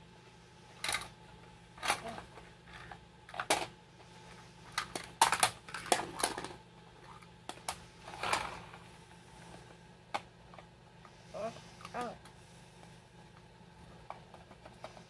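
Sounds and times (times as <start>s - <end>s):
plastic toy parts clicking: 4.7s - 6.6s.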